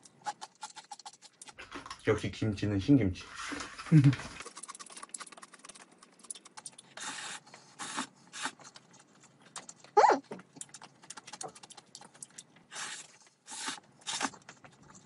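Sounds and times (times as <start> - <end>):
slurping noodles: 4.6 - 8.8, 12.7 - 14.5.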